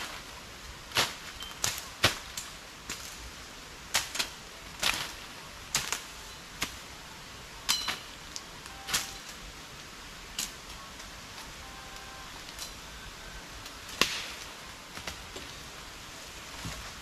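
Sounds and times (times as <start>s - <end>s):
machetes chopping brush: 0.9s - 3.2s, 3.9s - 6.8s, 7.7s - 9.3s, 13.9s - 15.5s.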